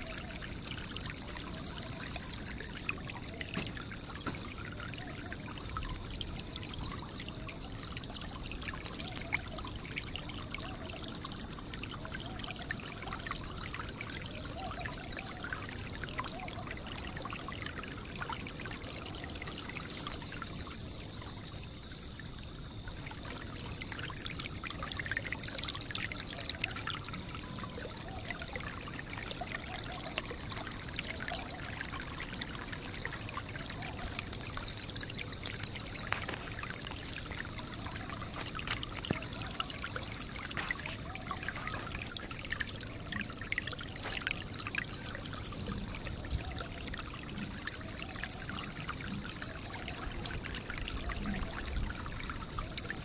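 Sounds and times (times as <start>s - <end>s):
trickling and pouring water: 0.0s - 53.0s.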